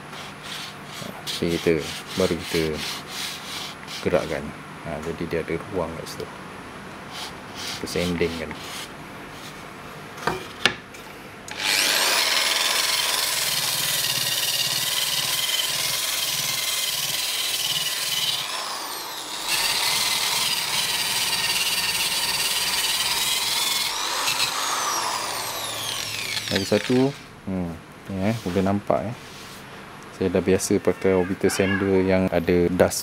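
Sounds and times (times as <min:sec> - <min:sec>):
sandpaper disc rasping on wood: 0:00.0 - 0:04.3, 0:07.1 - 0:09.6
electric polisher whining: 0:11.5 - 0:14.2, 0:18.0 - 0:27.2.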